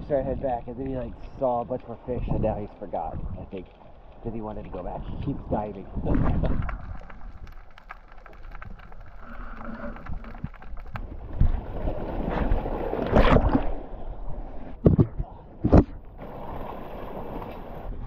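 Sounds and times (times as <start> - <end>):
wind buffeting microphone: 0.0 - 7.6
sea water sloshing on rocks: 0.3 - 13.9
loud thumps: 14.8 - 16.0.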